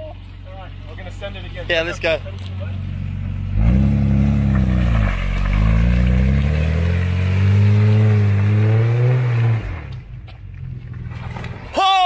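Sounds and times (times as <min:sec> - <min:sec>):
engine revving hard: 0:03.5 - 0:09.9.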